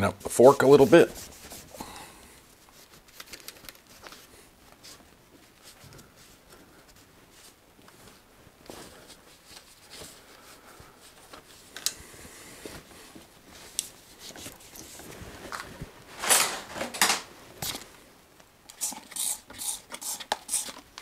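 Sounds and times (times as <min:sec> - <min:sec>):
cloth rag rubbing: 0:00.1 - 0:01.9, 0:02.5 - 0:11.7.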